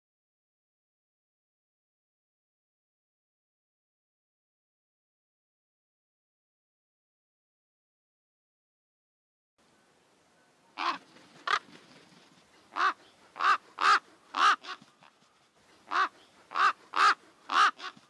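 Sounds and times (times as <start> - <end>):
crow cawing: 10.8 - 11.7, 12.7 - 14.8, 15.9 - 18.0.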